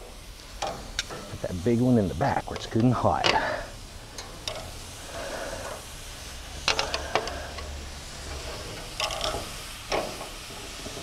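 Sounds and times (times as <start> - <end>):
meat sizzling on grill: 0.0 - 11.0
metal skewers clinking on grill: 2.2 - 5.8, 6.6 - 11.0.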